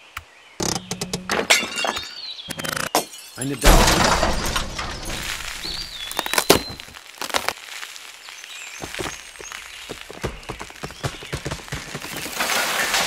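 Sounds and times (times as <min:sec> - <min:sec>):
sharp cracks and crackles: 0:03.8 - 0:13.0.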